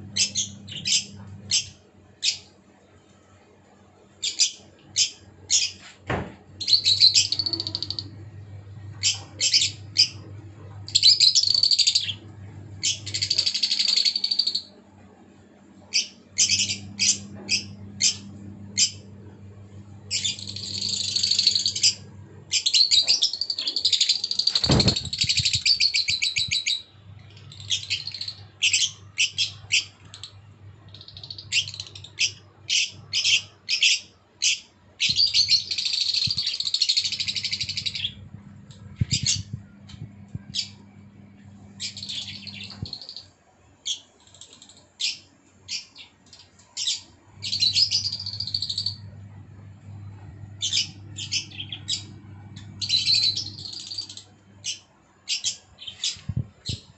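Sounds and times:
low steady hum: 0.0 - 33.4, 34.9 - 44.0, 45.0 - 56.9
lovebirds chirping: 0.1 - 2.4, 6.6 - 14.7, 20.1 - 44.0, 44.6 - 56.8.

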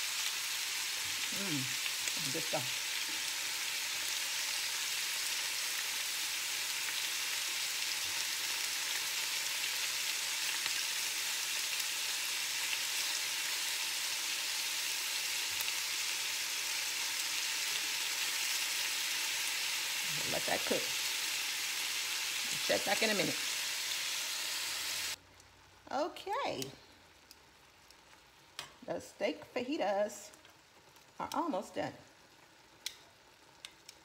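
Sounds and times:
meat and vegetables sizzling in skillet: 0.0 - 34.0.

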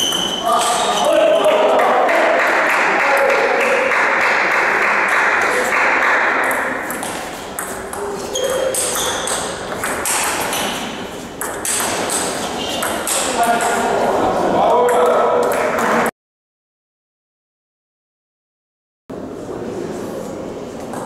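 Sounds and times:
crowd voices: 0.0 - 11.2, 12.1 - 16.1.

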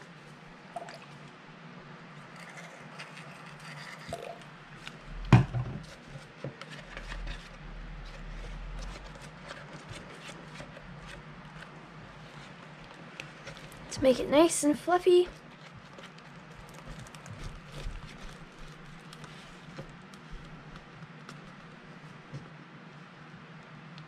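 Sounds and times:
stick stirring sticky slime: 15.1 - 21.7.

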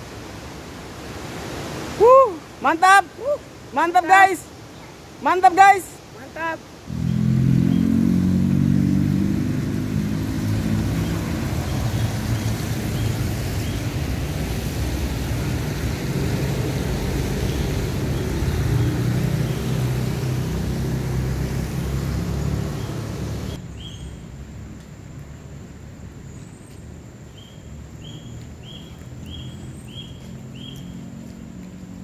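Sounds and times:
continuous rushing noise: 0.0 - 23.7.

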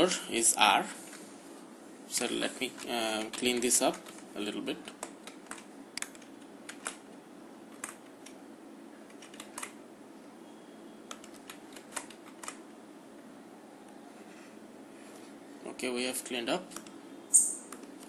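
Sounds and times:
computer input clicks: 11.1 - 12.6.

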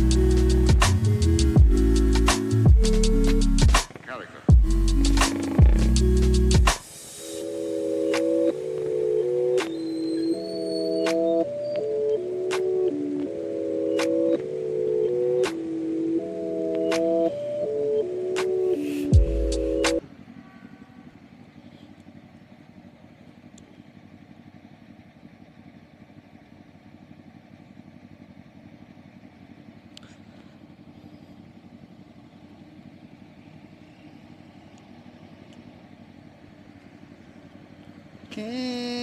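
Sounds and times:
motorcycle engines idling: 0.0 - 39.0.

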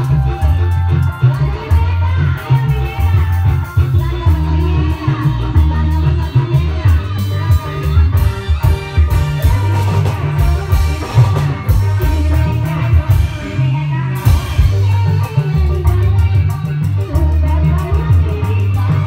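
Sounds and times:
loud music with bass and guitar: 0.0 - 19.0.

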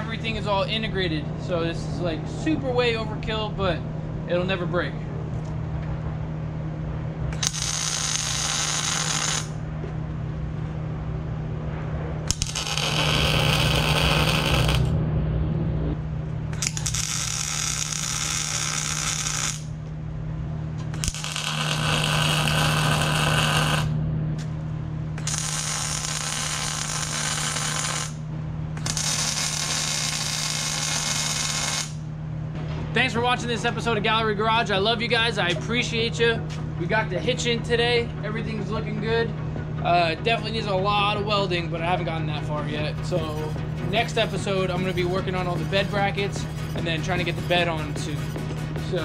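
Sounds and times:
steady low hum: 0.0 - 49.0
welding arc crackling: 7.3 - 9.6, 12.3 - 14.9, 16.5 - 19.8, 20.9 - 24.0, 25.2 - 28.2, 28.8 - 32.1.

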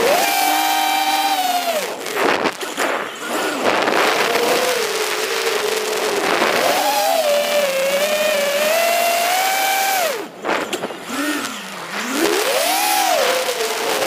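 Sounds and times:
drone propellers whining: 0.0 - 14.0.

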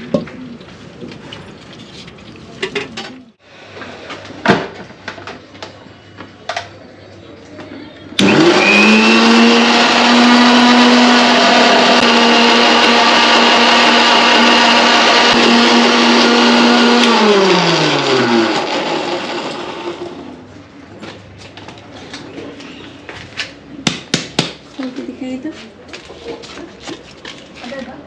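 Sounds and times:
mixer grinder motor whine: 8.2 - 20.4.

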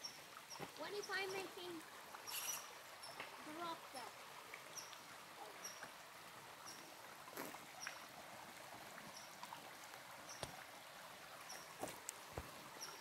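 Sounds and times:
creek flowing: 0.0 - 13.0.

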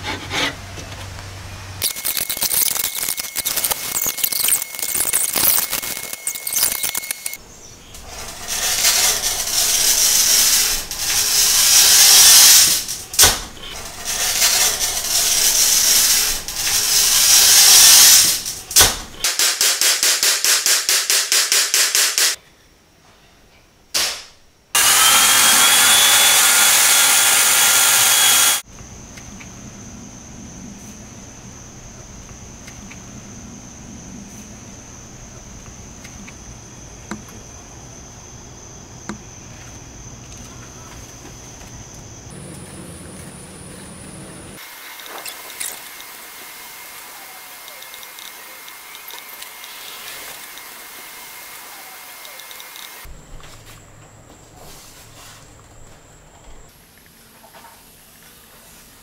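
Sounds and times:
glass cutter scraping glass: 1.8 - 7.4, 24.8 - 28.6
insects chirring: 1.8 - 19.2, 28.6 - 56.7
steady hiss: 7.4 - 22.3.

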